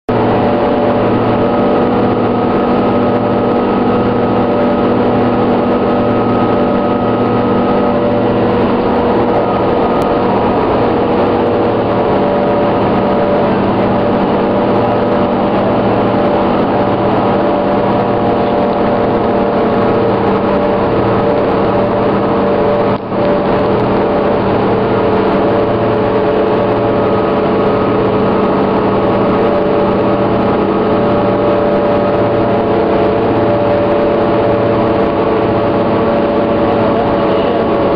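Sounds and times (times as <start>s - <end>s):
bus diesel engine running: 0.1s - 37.9s.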